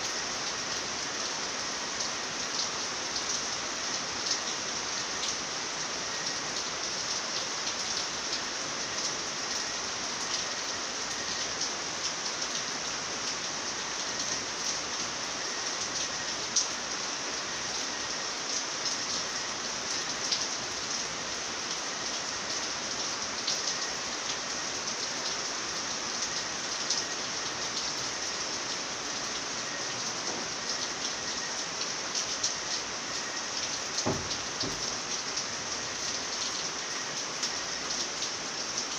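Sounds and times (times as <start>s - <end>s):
steady rainfall: 0.0s - 38.9s
raindrops ticking: 29.3s - 38.9s.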